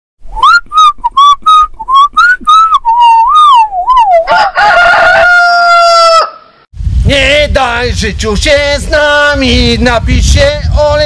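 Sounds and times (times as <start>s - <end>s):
person whistling: 0.3s - 4.2s.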